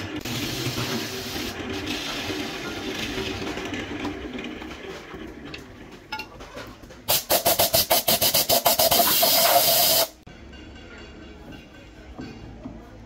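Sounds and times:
wood lathe spinning: 0.0s - 5.9s.

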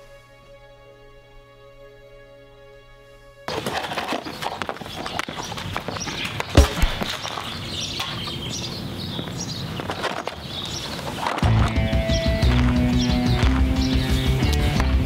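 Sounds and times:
sad music: 0.0s - 4.1s, 11.4s - 15.0s
clatter scuffs and knocks: 3.5s - 8.4s, 9.2s - 15.0s
loud thump: 6.5s - 7.2s.

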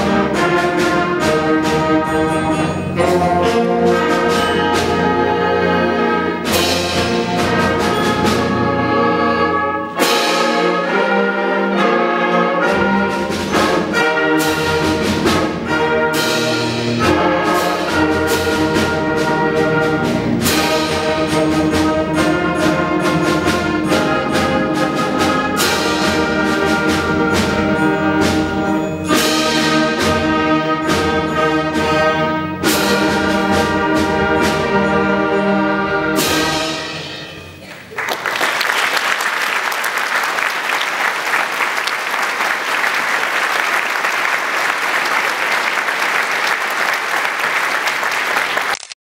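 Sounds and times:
concert band playing fanfare: 0.0s - 48.9s
audience applauding: 37.6s - 49.0s.

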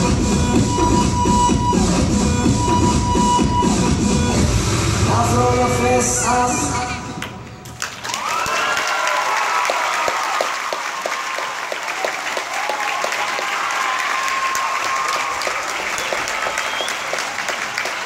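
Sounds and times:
audience clapping and cheering: 7.2s - 18.0s
high whoops and shouts: 8.0s - 11.6s, 12.4s - 17.2s.

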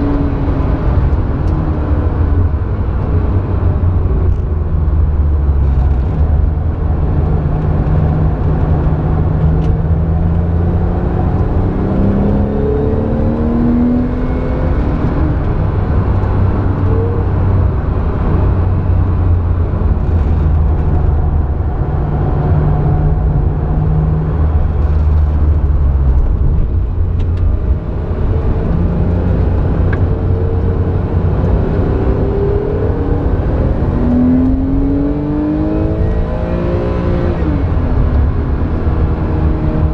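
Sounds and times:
car engine drone from cabin: 0.0s - 39.9s.

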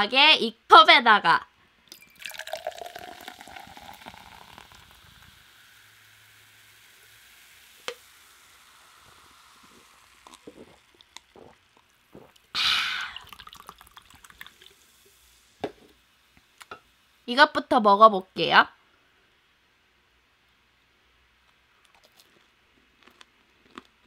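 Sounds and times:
sparkling water pouring into cup: 1.9s - 16.9s
crackling fizz: 1.9s - 17.3s
sipping and swallowing: 2.2s - 5.2s, 9.0s - 14.8s, 21.8s - 23.9s
breathy exhale: 12.6s - 13.3s.

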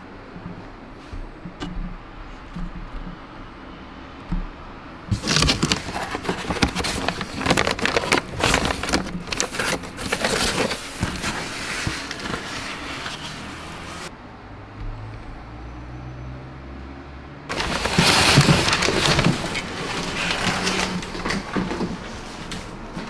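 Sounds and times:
foam and plastic rustling: 5.1s - 14.1s, 17.5s - 23.0s.

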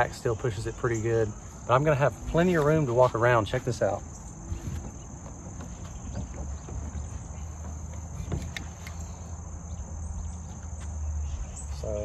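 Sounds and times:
insects trilling: 0.0s - 12.0s
faint soft knocks: 4.6s - 9.0s.

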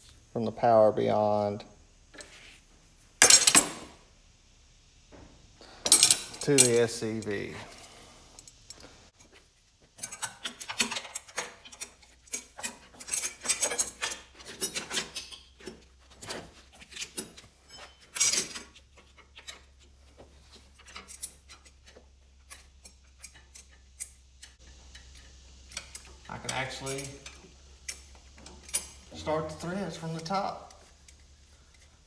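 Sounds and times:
metal hydraulic line clinking: 5.8s - 7.7s, 20.7s - 32.0s.

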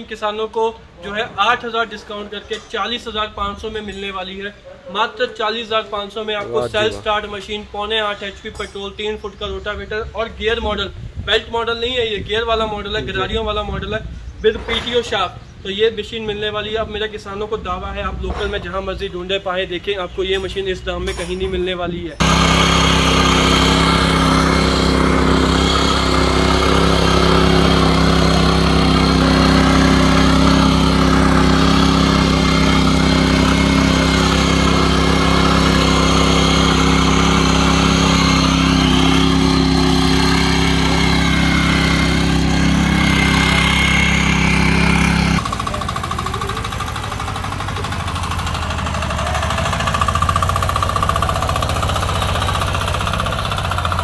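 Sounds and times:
power tiller engine running: 22.2s - 54.0s.

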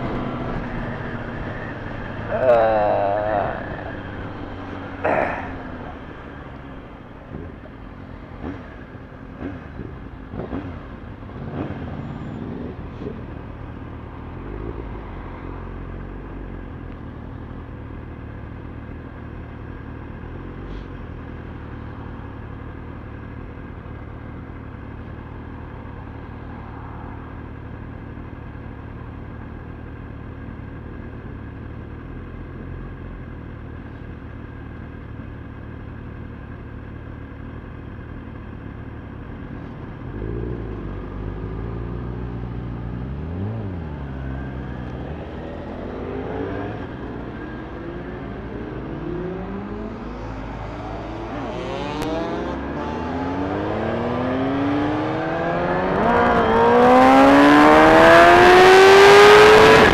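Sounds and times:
motorcycle engine revving: 0.0s - 16.4s, 36.9s - 59.9s.

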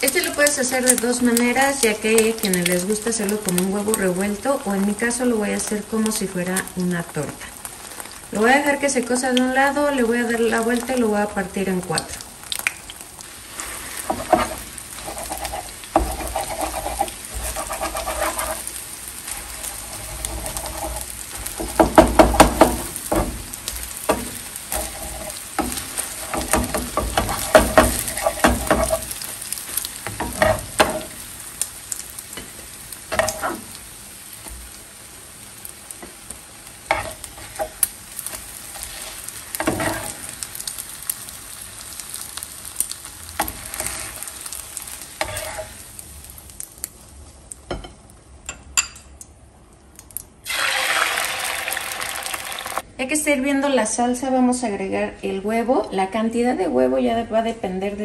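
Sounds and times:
eggs sizzling in oil: 0.0s - 53.0s
spatula scraping and tapping pan: 13.5s - 31.2s, 32.3s - 33.8s, 36.9s - 40.6s, 43.4s - 44.6s, 45.2s - 45.8s.

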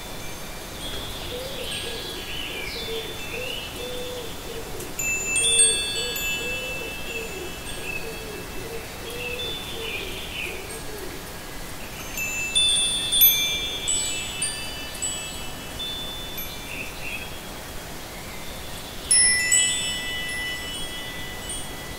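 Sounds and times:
wind chimes ringing: 4.8s - 21.9s.

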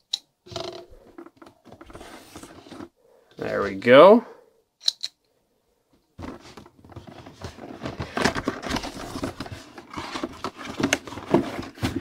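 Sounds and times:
cardboard rustling and scraping: 0.9s - 3.0s, 6.2s - 12.0s.

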